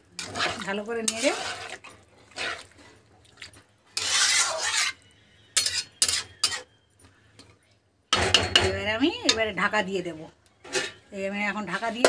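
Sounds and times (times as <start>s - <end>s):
spatula scraping through liquid: 0.2s - 2.9s, 3.9s - 6.6s.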